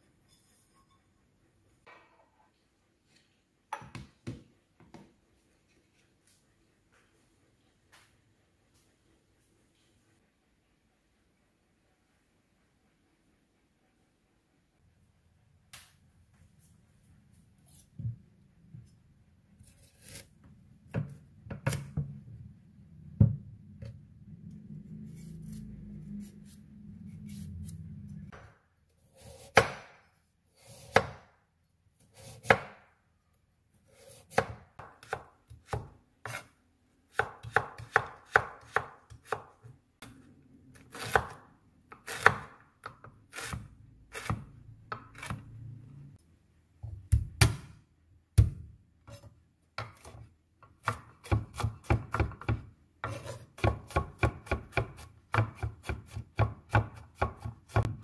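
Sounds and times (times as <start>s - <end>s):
knife chopping on wooden board: 29.2s - 30.0s, 30.6s - 31.3s, 33.9s - 36.5s, 37.1s - 39.5s, 40.9s - 42.5s, 50.8s - 58.0s.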